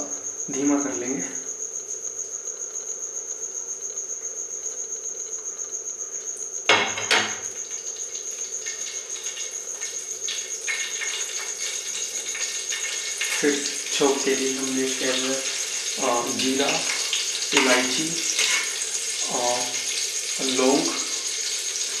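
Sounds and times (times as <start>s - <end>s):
cricket chirping: 0.0s - 22.0s
ghee crackling in pan: 7.4s - 22.0s.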